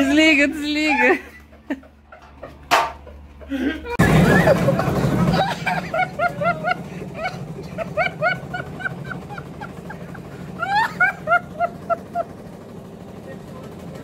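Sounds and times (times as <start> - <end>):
steady low hum: 0.0 - 14.0.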